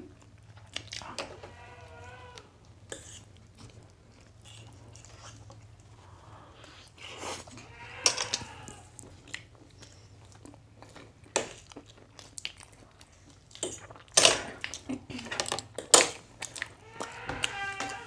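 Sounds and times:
chewing and biting bread: 0:02.9 - 0:07.6, 0:08.2 - 0:17.6.

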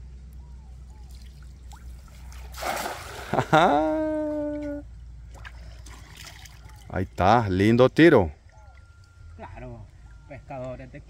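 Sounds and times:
cast net splashing into water: 0:01.1 - 0:04.0, 0:05.3 - 0:06.9.

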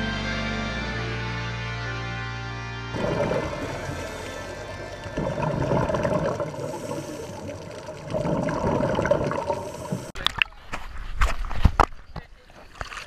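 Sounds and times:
underwater bubbling hiss: 0:03.0 - 0:10.2
water splashes: 0:03.0 - 0:13.0.

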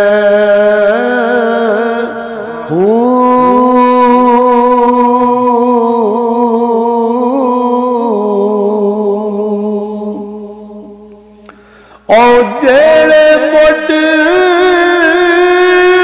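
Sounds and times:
man singing a long note: 0:00.0 - 0:11.1, 0:12.1 - 0:16.0.

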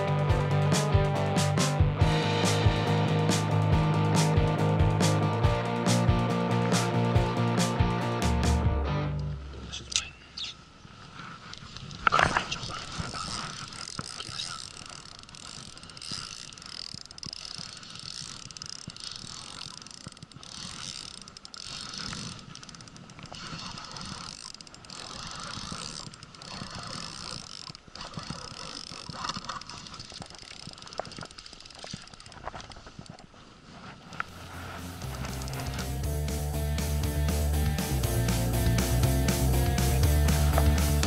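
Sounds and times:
fishing reel ticking and whirring: 0:12.6 - 0:33.2, 0:34.3 - 0:41.0.

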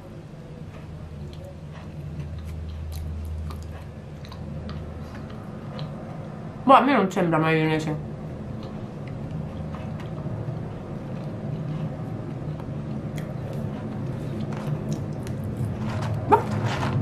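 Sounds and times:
airplane passing overhead: 0:00.0 - 0:17.0
faint chewing clicks: 0:00.7 - 0:06.3, 0:08.5 - 0:15.8.

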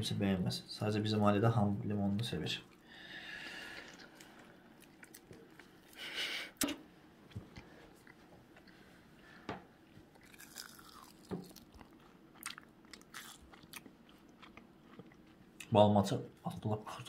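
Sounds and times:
fried cheese crunching: 0:10.2 - 0:15.7.

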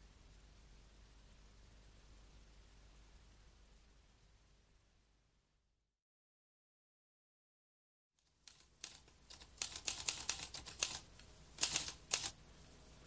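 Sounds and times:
typewriter keystroke clicks: 0:08.4 - 0:12.4.

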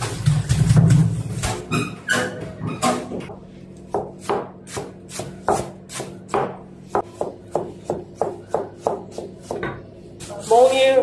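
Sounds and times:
knife chopping on cutting board: 0:03.9 - 0:09.8.

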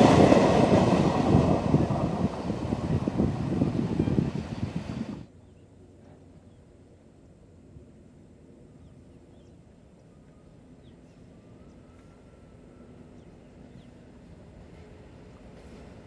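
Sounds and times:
locomotive rumble: 0:00.0 - 0:06.8.

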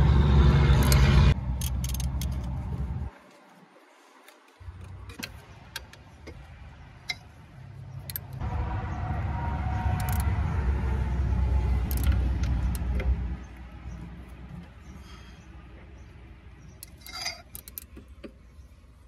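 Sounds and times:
low rumble: 0:00.0 - 0:03.1, 0:07.8 - 0:14.9
socket ratchet clicking: 0:00.8 - 0:02.5, 0:08.0 - 0:08.4, 0:10.0 - 0:10.3, 0:11.8 - 0:13.0, 0:16.8 - 0:18.1.

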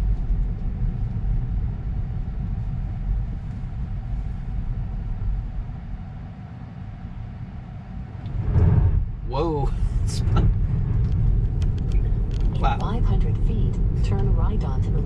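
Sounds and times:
road and tyre rumble in car cabin: 0:00.0 - 0:15.0.

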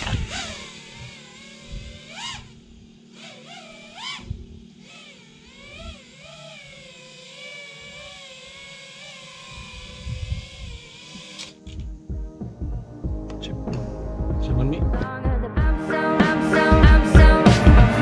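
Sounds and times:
quadcopter motors whining: 0:00.0 - 0:13.0.

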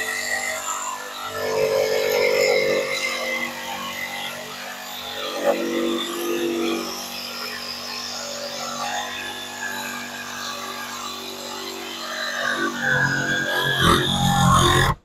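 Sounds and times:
jigsaw sawing through wood: 0:00.0 - 0:15.0
motor hum: 0:12.5 - 0:15.0.

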